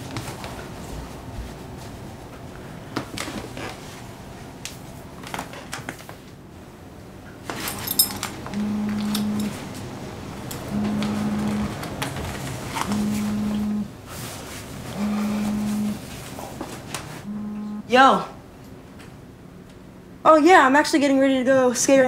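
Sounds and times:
mobile phone vibrating: 0:08.5 - 0:09.6, 0:10.7 - 0:11.9, 0:12.8 - 0:13.9, 0:14.9 - 0:16.0, 0:17.2 - 0:17.9.

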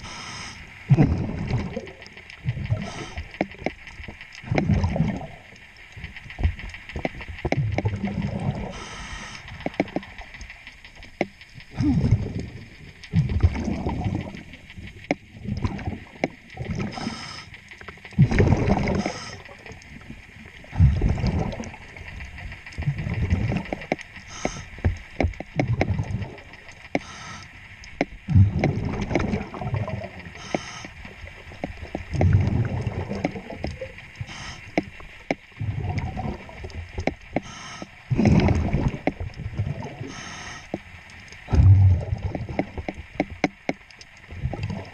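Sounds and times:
regulator exhaust bubbles: 0:11.2 - 0:17.2, 0:18.2 - 0:19.8, 0:20.7 - 0:22.0, 0:28.0 - 0:31.0, 0:31.6 - 0:40.3, 0:41.5 - 0:43.6.

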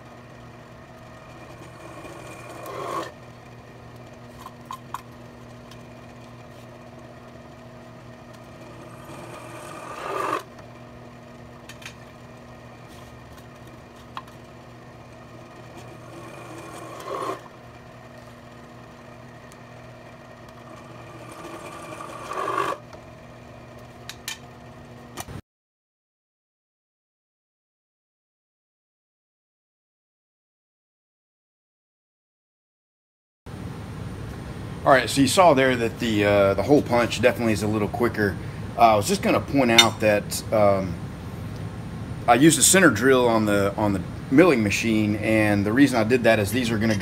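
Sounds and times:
milling machine spindle hum: 0:00.0 - 0:25.4
drill cutting steel: 0:01.2 - 0:03.2, 0:08.4 - 0:10.6, 0:15.5 - 0:17.6, 0:20.6 - 0:22.8.

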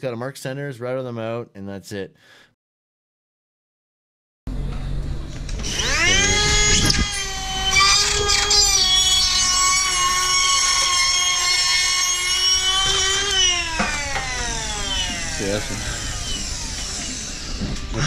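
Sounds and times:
drywall router whining: 0:05.2 - 0:18.0.

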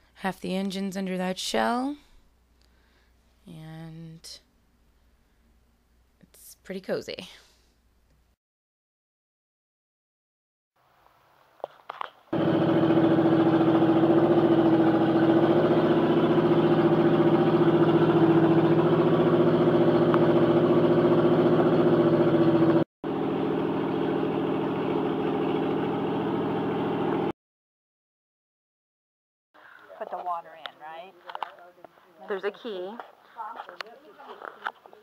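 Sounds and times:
motorhome engine idling: 0:12.4 - 0:27.3.

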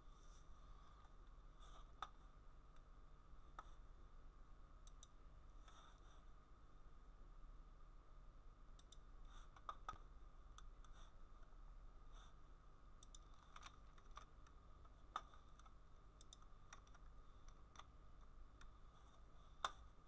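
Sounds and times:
low electrical hum: 0:00.0 - 0:20.0
faint computer clicks: 0:04.8 - 0:05.2, 0:08.8 - 0:10.0, 0:13.0 - 0:18.8.

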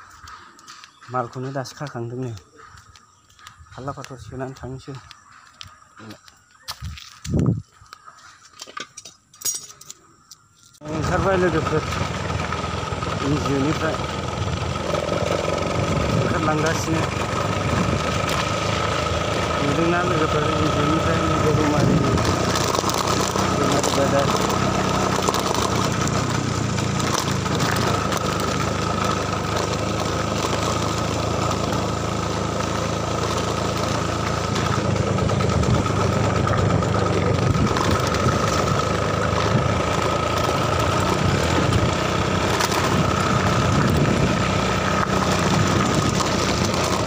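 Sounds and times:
road and wind noise: 0:00.0 - 0:47.0
small vehicle engine running: 0:10.8 - 0:47.0.

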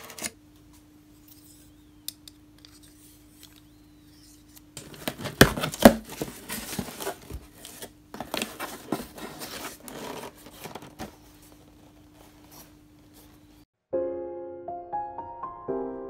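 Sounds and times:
tape tearing off cardboard: 0:03.3 - 0:11.0
cardboard rustling and scraping: 0:04.1 - 0:13.6.

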